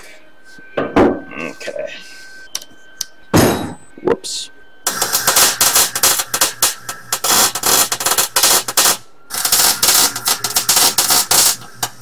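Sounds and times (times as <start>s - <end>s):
welding arc crackling and spattering: 4.9s - 12.0s.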